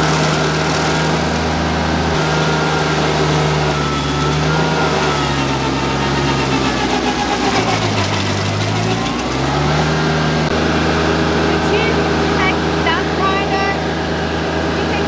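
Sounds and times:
stump grinder chewing into stump: 0.0s - 10.7s
tractor engine running: 0.0s - 15.0s.

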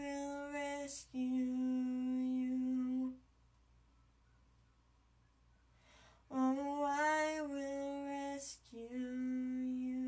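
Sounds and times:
woman singing unaccompanied: 0.0s - 3.2s, 6.3s - 10.0s.

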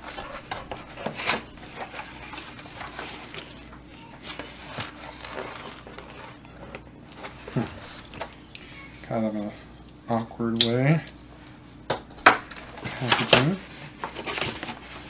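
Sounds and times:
cardboard scraping and rustling: 0.0s - 8.2s, 12.6s - 15.0s.

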